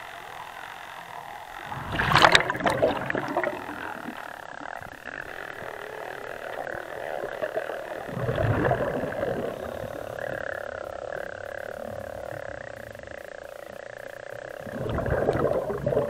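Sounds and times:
steady hum: 0:00.0 - 0:16.0
exhaled bubbles underwater: 0:01.6 - 0:12.7, 0:14.4 - 0:16.0.

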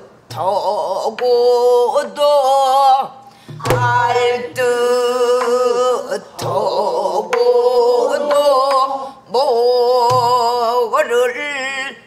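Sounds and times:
barrel drum strokes: 0:03.5 - 0:04.8
folk singing in held notes: 0:03.6 - 0:11.2.

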